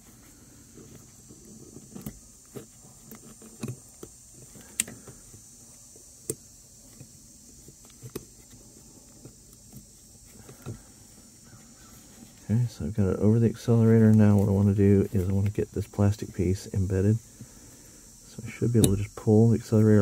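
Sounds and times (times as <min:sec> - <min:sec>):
cable end clicking on pedal arm: 0:18.8 - 0:19.0.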